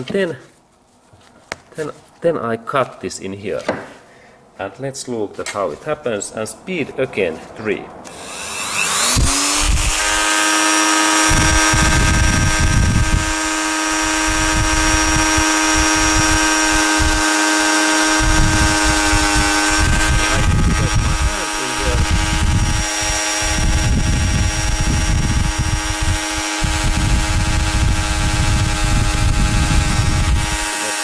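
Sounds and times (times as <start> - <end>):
rotary tool whine: 7.5 - 31.0
cut-off wheel grinding wire: 8.0 - 31.0.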